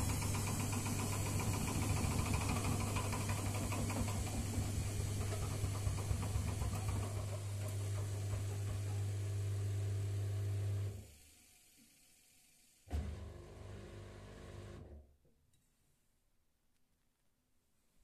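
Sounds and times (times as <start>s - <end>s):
washing machine spinning: 0.0s - 11.6s.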